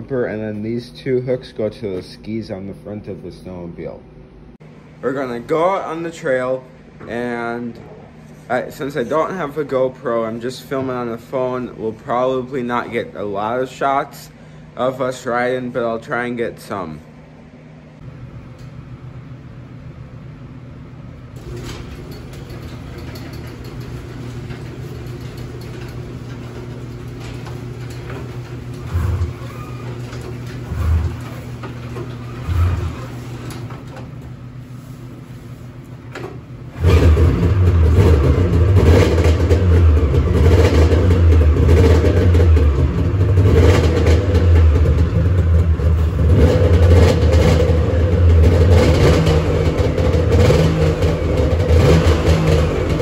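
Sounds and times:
snowmobile engine starting and running: 0:21.4 - 0:34.4, 0:36.2 - 0:53.0.

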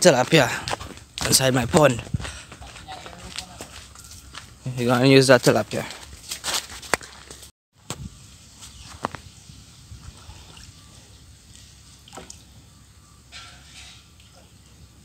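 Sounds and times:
water dripping: 0:10.0 - 0:12.6.

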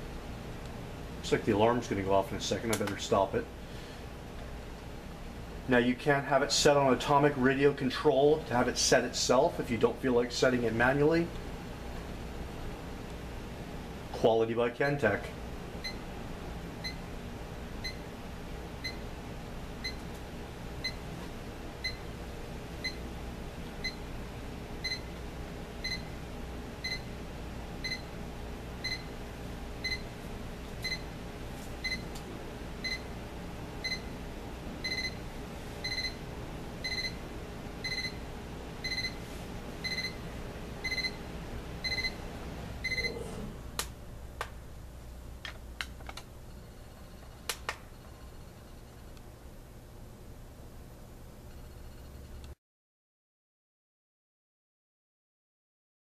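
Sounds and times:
alarm clock beeping: 0:27.8 - 0:28.0, 0:28.8 - 0:29.1, 0:34.8 - 0:35.2, 0:35.8 - 0:36.2, 0:36.8 - 0:37.2, 0:37.8 - 0:38.2, 0:38.8 - 0:39.2, 0:39.8 - 0:40.2, 0:40.8 - 0:41.2, 0:41.8 - 0:42.2, 0:42.8 - 0:43.2.

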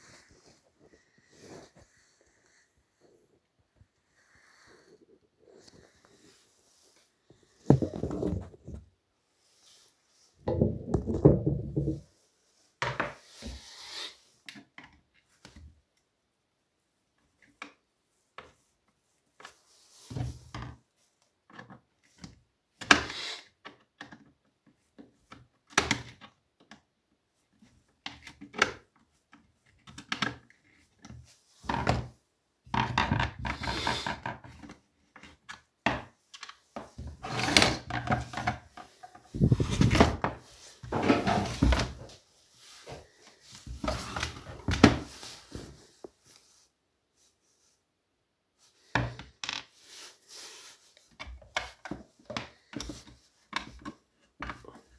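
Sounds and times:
plastic housing and tools handled: 0:07.6 - 0:08.8, 0:36.4 - 0:42.0.

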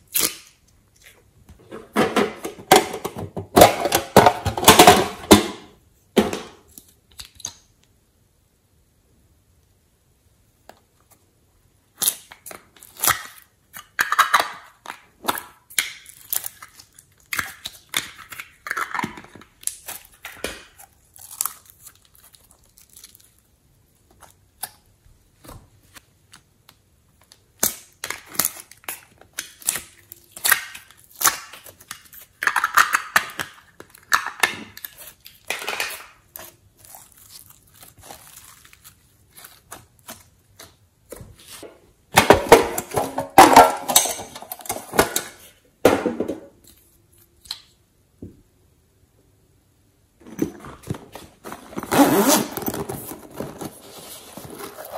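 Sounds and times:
slime tearing: 0:00.0 - 0:01.2, 0:19.6 - 0:24.8, 0:36.3 - 0:40.8.

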